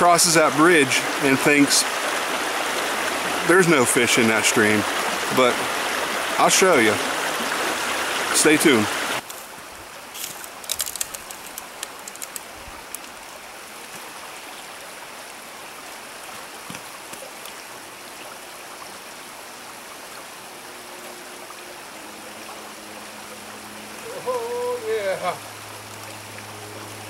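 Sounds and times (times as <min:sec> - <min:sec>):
stream flowing over stones: 0:00.0 - 0:27.0.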